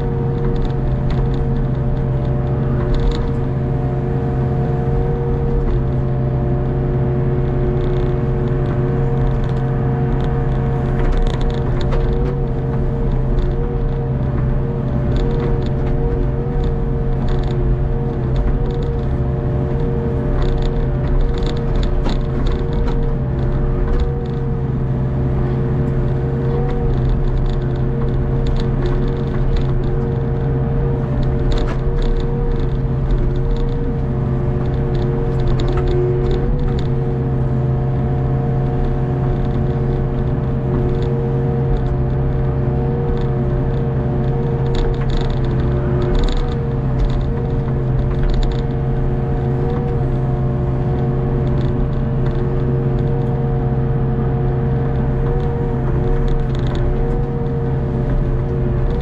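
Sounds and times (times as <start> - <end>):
excavator diesel engine whining: 0.0 - 59.0
light clicks and scrapes: 0.3 - 4.0, 7.4 - 59.0.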